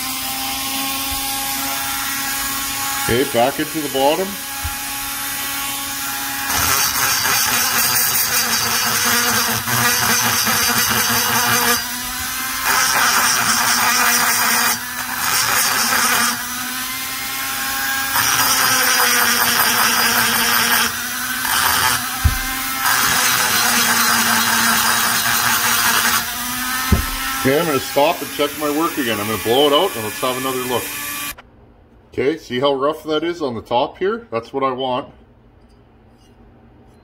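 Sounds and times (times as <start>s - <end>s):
rotary grinder grinding metal: 0.0s - 31.4s
knock: 22.2s - 22.6s, 26.9s - 27.4s.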